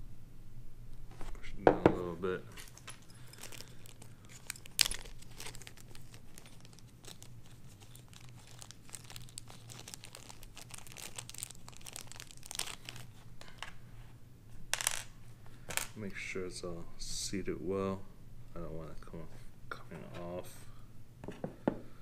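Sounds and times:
plastic bag crinkling: 2.3 - 13.7.

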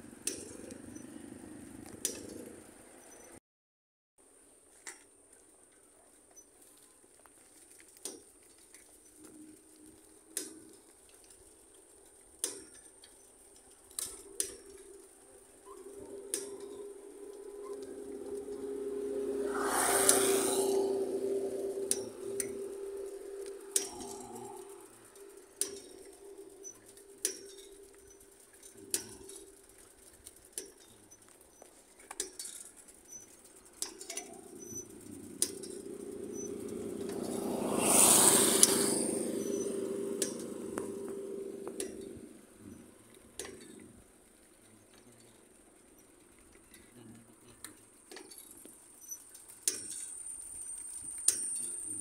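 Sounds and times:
road vehicle passing: 0.0 - 3.4, 13.4 - 31.5, 32.8 - 45.8.

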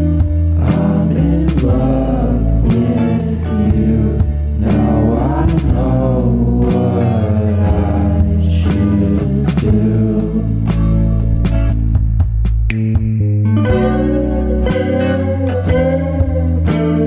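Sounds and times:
song with singing voice: 0.0 - 12.0.

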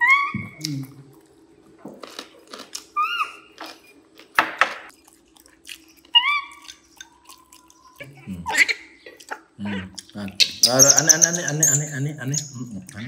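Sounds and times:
faint steady hum: 0.0 - 13.0
monkey squeaks: 3.0 - 3.9, 6.1 - 6.7, 10.4 - 12.6.

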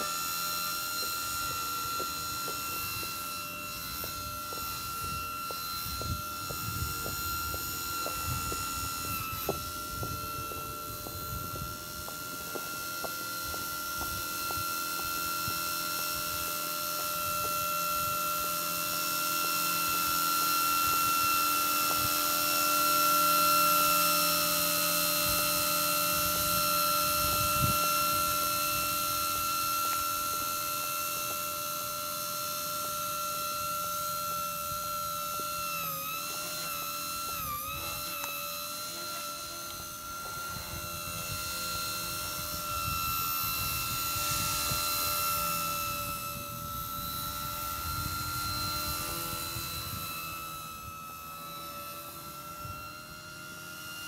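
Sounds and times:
rc helicopter high-pitched whine: 0.0 - 54.0.

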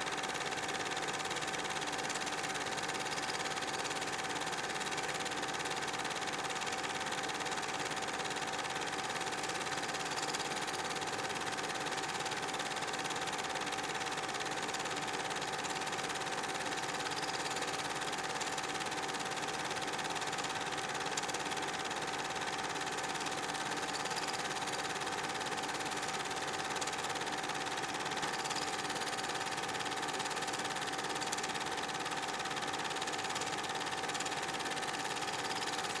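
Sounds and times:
film projector whirring: 0.0 - 36.0
film-advance mechanism clatter: 9.2 - 11.6, 16.5 - 19.4, 22.4 - 36.0.

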